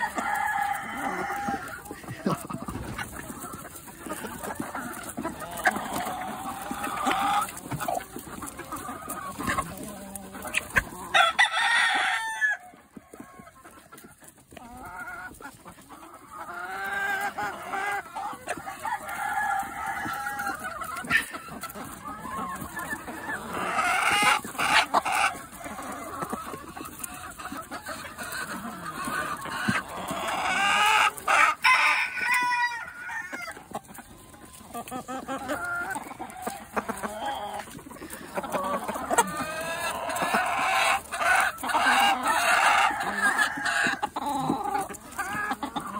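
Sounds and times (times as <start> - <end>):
hens clucking and squawking: 0.0 - 45.9
rooster crowing: 11.2 - 12.7.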